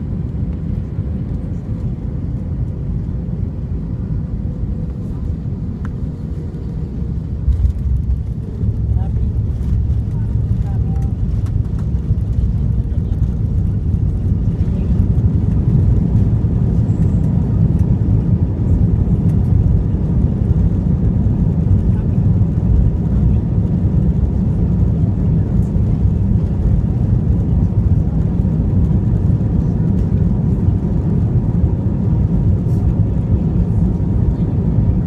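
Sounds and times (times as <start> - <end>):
aircraft engine noise: 0.0 - 35.0
wheels rumbling on runway: 0.0 - 35.0.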